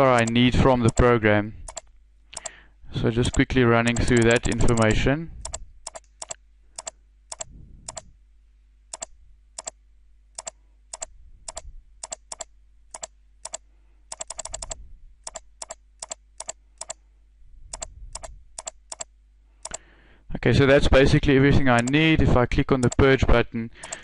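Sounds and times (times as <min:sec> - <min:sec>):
computer mouse clicking: 0:00.0 - 0:01.1, 0:01.7 - 0:02.6, 0:03.3 - 0:08.1, 0:08.9 - 0:09.8, 0:10.4 - 0:17.0, 0:17.7 - 0:19.8, 0:21.8 - 0:22.0, 0:22.8 - 0:23.1.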